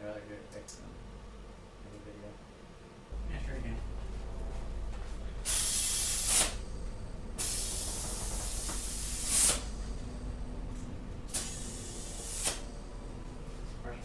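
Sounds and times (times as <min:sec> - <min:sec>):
steady low hum: 0:00.0 - 0:14.0
compressed air hissing: 0:05.3 - 0:10.4, 0:11.2 - 0:12.9.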